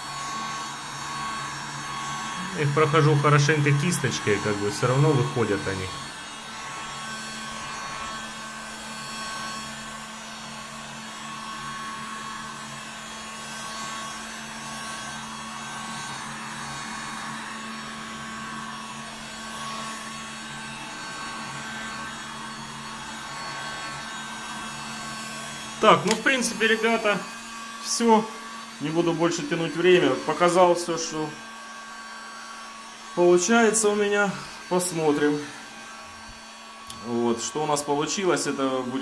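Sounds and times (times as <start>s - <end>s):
heat gun blowing air: 0.0s - 39.0s.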